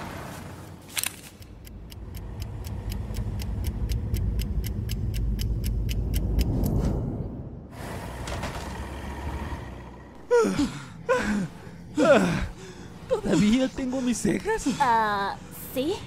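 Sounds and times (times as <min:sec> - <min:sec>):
car engine rumble: 0:00.0 - 0:16.0
rapid even ticking: 0:01.3 - 0:06.8.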